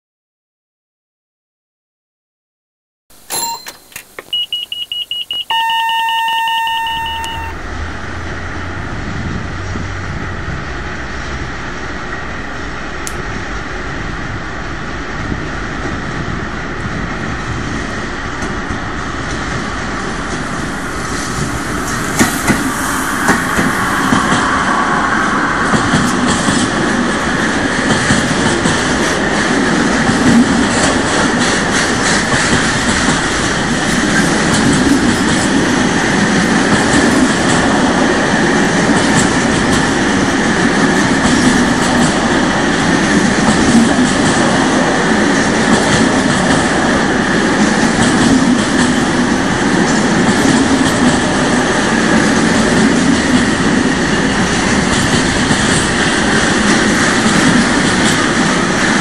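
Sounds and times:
held beeping tone: 3.3s - 7.9s
freight train rolling past: 5.5s - 59.0s.

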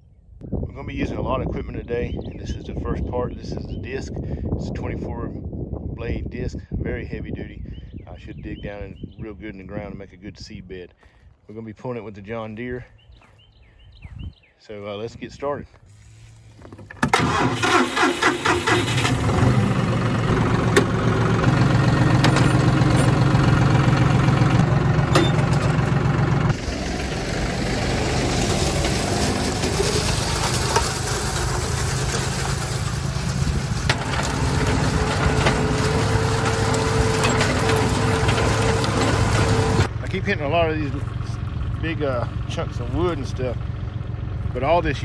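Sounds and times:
diesel engine starting and running: 15.8s - 45.0s.

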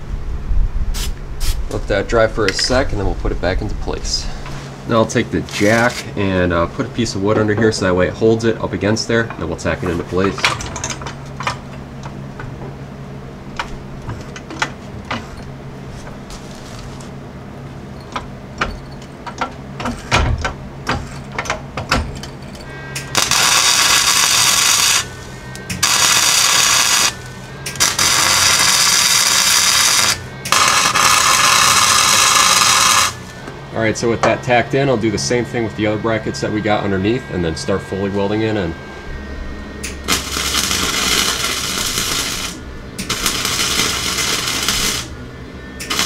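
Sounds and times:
welding crackling hiss: 1.0s - 2.8s, 4.8s - 6.2s, 22.8s - 33.4s, 39.8s - 45.2s, 45.8s - 46.0s.

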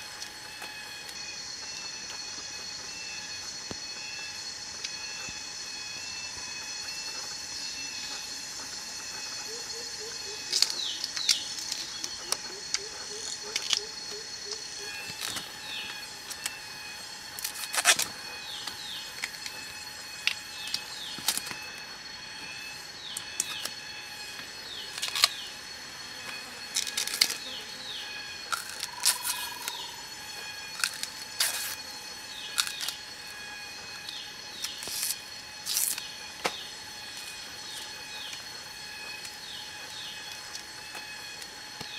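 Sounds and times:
high-pitched drone: 0.0s - 41.9s
bamboo strips cracking and snapping: 10.4s - 16.6s, 17.3s - 19.6s, 20.2s - 21.7s, 24.9s - 25.4s, 26.3s - 27.4s, 28.4s - 29.9s, 30.6s - 31.8s, 32.4s - 33.4s, 34.0s - 36.6s.

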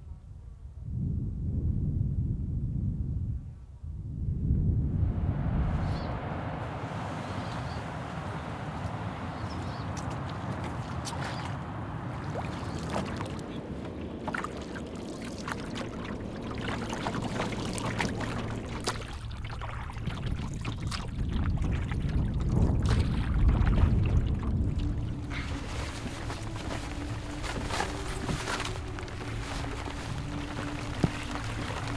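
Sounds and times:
wind buffeting microphone: 0.0s - 31.9s
water splashing around canoe: 9.4s - 31.9s.

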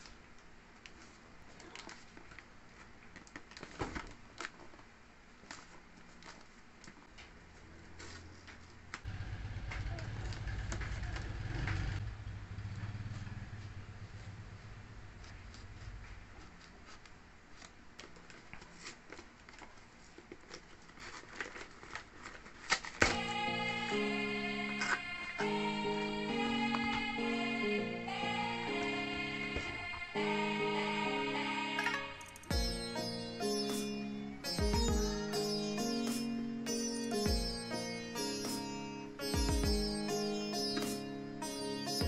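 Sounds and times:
packing tape tearing: 16.6s - 23.1s
plastic bag crinkling: 16.8s - 23.0s.

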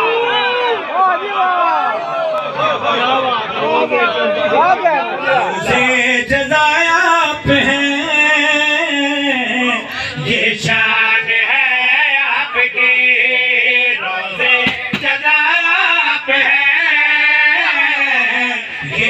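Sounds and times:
man chanting melodically: 5.2s - 19.0s.

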